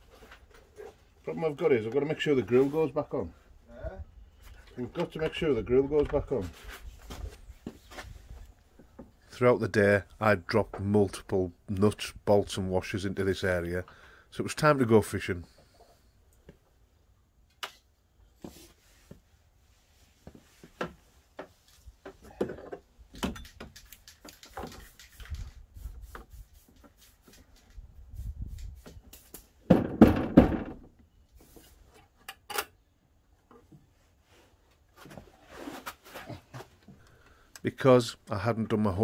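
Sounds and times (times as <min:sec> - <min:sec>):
small parts clicking and knocking: 0:22.6 - 0:25.6.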